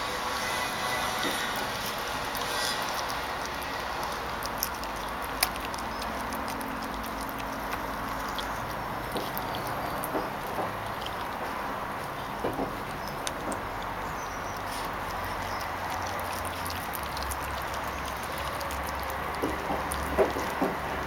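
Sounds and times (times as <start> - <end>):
bone crunching: 0.0 - 21.0
puppy chewing bone: 0.0 - 21.0.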